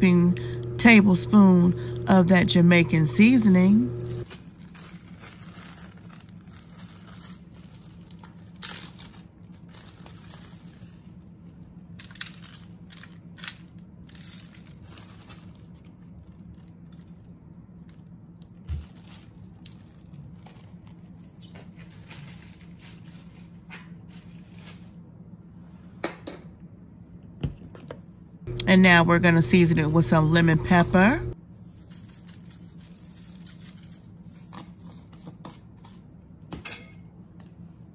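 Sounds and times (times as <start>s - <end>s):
low steady hum: 0.0s - 5.0s, 28.1s - 33.2s
packaging crinkling: 4.2s - 11.3s, 12.0s - 23.5s.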